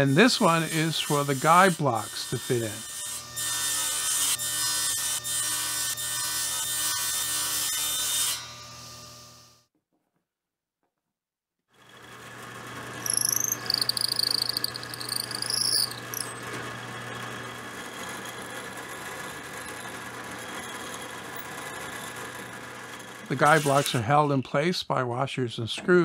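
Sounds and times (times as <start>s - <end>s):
drill press motor running: 11.8s - 23.3s
high wavering squeal of drill bit: 13.0s - 16.5s, 19.5s - 22.2s.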